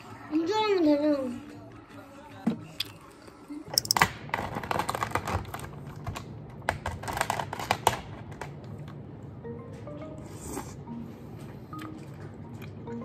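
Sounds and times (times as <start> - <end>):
plastic wrap crinkling: 4.3 - 8.4.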